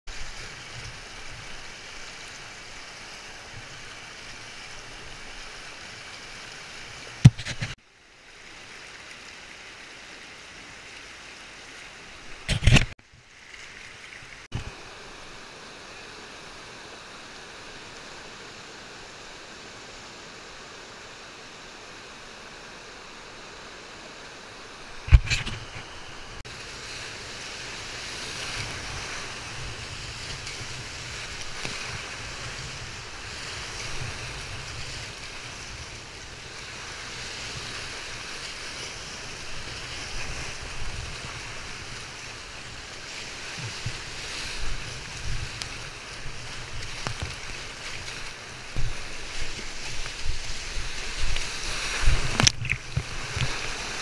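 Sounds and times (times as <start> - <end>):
sharp knocks on kayak: 7.2 - 7.8
river whitewater rushing: 13.8 - 54.0.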